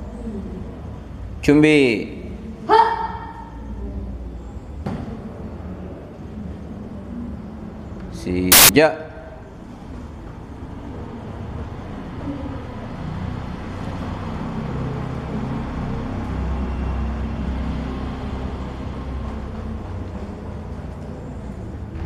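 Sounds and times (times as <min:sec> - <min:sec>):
low rumbling noise: 0:21.7 - 0:22.0.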